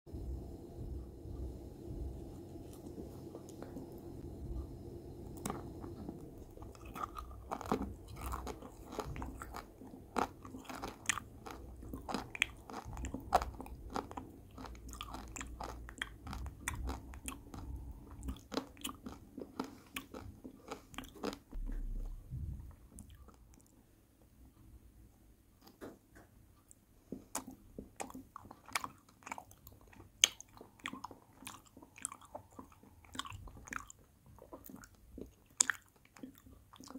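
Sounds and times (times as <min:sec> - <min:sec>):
crunching hard candy: 0:05.4 - 0:21.5.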